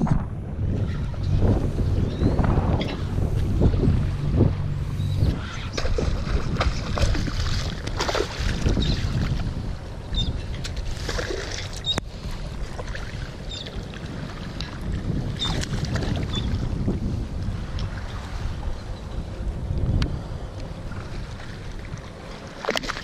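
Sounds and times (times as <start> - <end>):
wind buffeting microphone: 0.0 - 23.0
water splashing: 0.8 - 16.8, 21.0 - 23.0.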